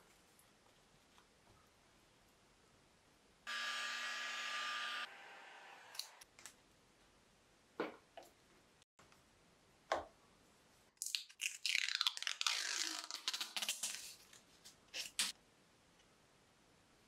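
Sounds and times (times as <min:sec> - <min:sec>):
plastic film being peeled off: 0:11.6 - 0:14.4.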